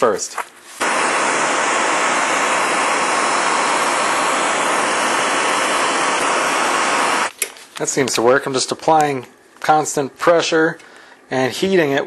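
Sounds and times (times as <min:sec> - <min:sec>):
blowtorch flame hissing: 0:00.8 - 0:07.3.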